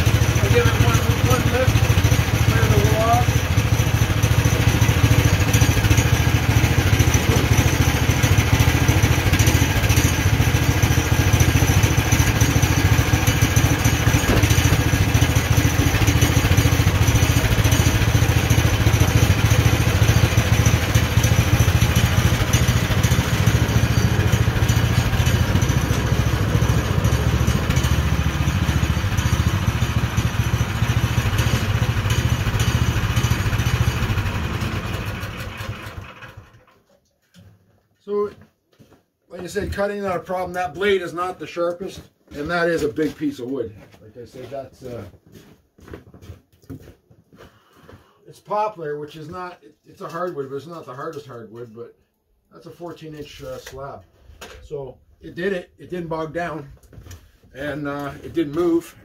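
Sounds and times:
petrol engine running: 0.0s - 36.7s
bandsaw cutting log: 4.2s - 36.5s.

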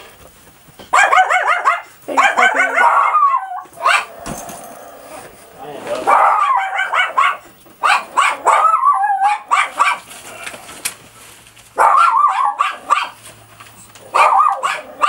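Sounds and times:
dog yipping and barking: 0.9s - 4.2s, 6.1s - 10.1s, 11.8s - 13.2s, 14.0s - 15.0s.

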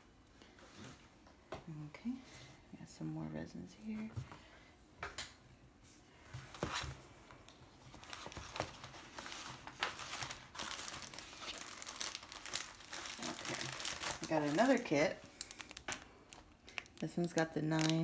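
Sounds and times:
plastic sleeve and paper crinkling: 7.8s - 18.0s.

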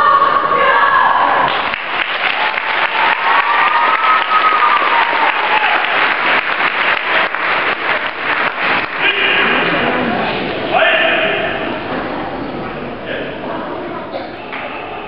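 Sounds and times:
crowd applauding: 1.4s - 10.7s.

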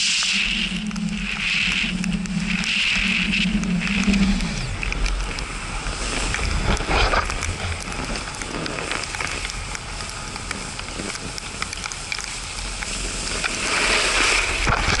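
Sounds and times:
wind on microphone: 0.0s - 9.1s
snowboard scraping over snow: 0.0s - 15.0s.

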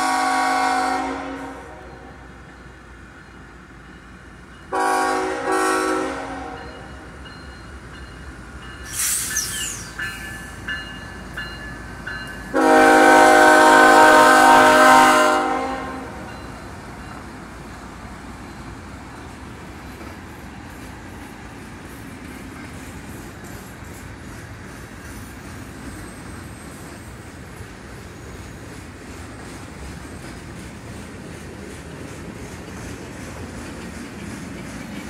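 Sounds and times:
locomotive horn blasts: 0.0s - 2.3s, 4.7s - 6.9s, 12.5s - 16.4s
passing train rumbling: 0.0s - 35.0s
high wheel squeals: 8.7s - 11.8s, 25.2s - 27.2s.

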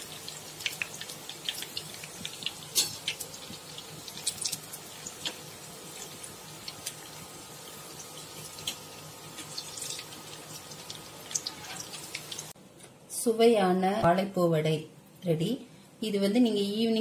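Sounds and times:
crackles and pops of frying: 0.0s - 12.6s
food deep-frying in hot oil: 0.0s - 12.6s.

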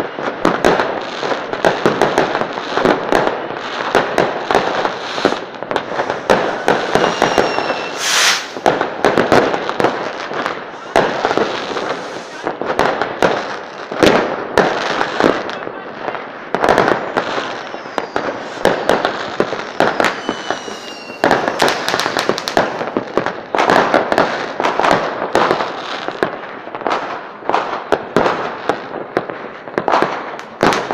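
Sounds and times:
fireworks bangs and crackling: 0.0s - 30.9s
falling whistle: 6.1s - 8.6s, 17.6s - 22.0s.

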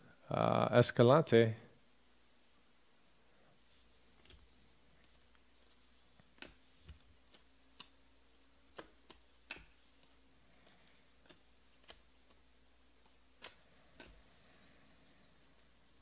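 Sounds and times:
cards clicking as slid: 8.7s - 12.4s, 13.0s - 14.3s.

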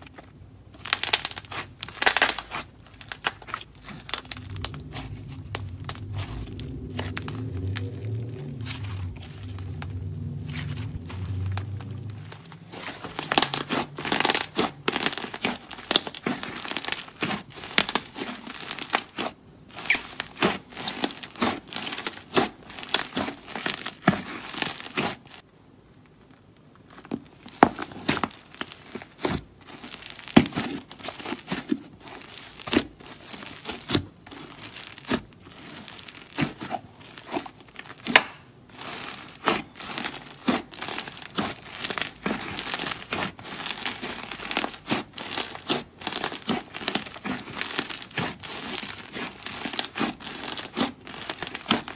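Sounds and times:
clay slime crackling: 0.0s - 51.9s.

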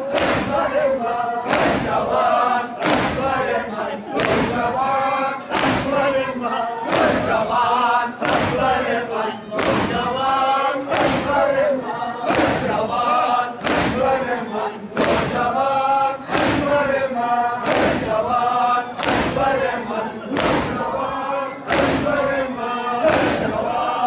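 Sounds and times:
crowd of men chanting: 0.0s - 24.0s
hands thumping chests: 5.5s - 6.0s.

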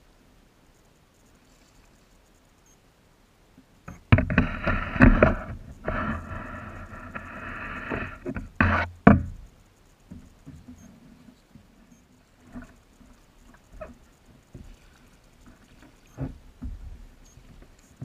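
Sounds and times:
faint ticks and taps: 3.6s - 18.0s
sharp knocks: 7.9s - 9.5s.

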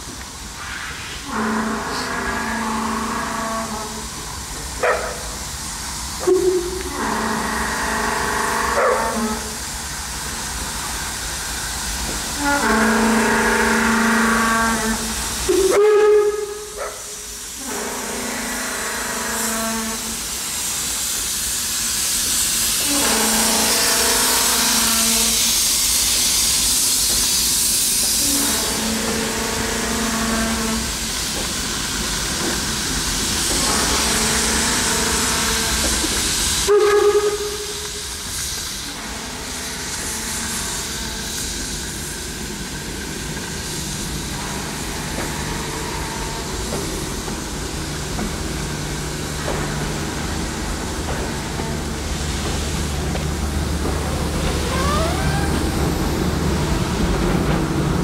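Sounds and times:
loud hiss of steam: 0.0s - 58.0s
train carriages rolling past: 0.0s - 58.0s
steam locomotive whistle: 1.2s - 4.2s, 6.2s - 9.7s, 12.3s - 20.3s, 22.7s - 25.6s, 28.0s - 31.4s, 33.5s - 42.2s, 51.3s - 56.6s.

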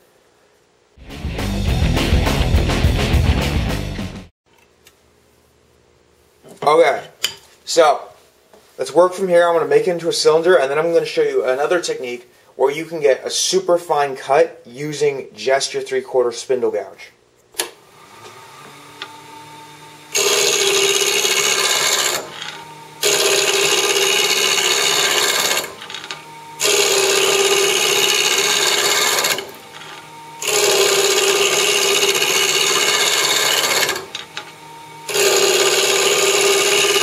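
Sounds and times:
lathe motor hum: 17.8s - 37.0s
wood lathe gouge cutting wood: 17.8s - 37.0s.

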